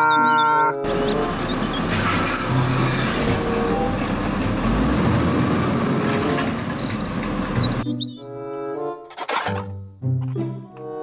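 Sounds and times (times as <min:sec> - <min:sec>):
street noise: 0:00.0 - 0:10.9
truck engine rumbling: 0:00.2 - 0:08.0.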